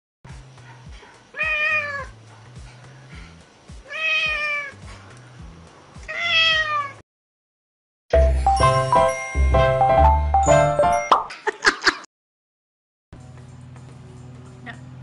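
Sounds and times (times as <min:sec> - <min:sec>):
cat meowing: 0:01.4 - 0:02.2, 0:03.8 - 0:04.8, 0:06.1 - 0:07.0.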